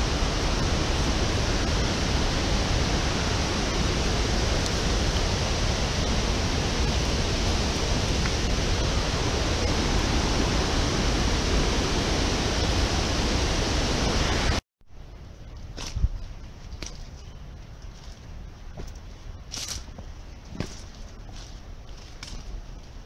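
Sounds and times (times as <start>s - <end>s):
waterfall rushing: 0.0s - 14.6s.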